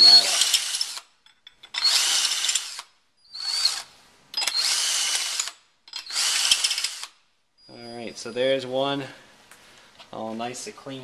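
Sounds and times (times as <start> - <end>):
drill cutting steel: 0.0 - 7.2.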